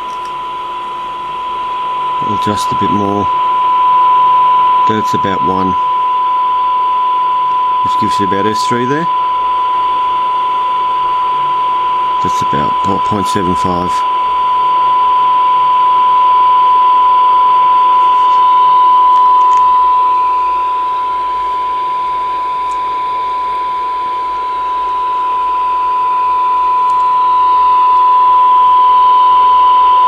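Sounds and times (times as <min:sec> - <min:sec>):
radio test tone: 0:00.0 - 0:30.0
radio hiss: 0:02.1 - 0:03.6, 0:04.2 - 0:05.9, 0:07.8 - 0:09.2, 0:12.2 - 0:14.2.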